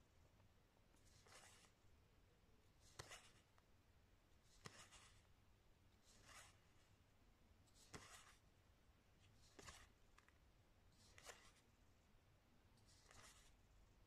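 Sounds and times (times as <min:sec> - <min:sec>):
game cards sliding: 0:01.1 - 0:01.8, 0:02.8 - 0:03.5, 0:04.6 - 0:05.2, 0:06.0 - 0:06.7, 0:07.8 - 0:08.4, 0:11.0 - 0:11.7.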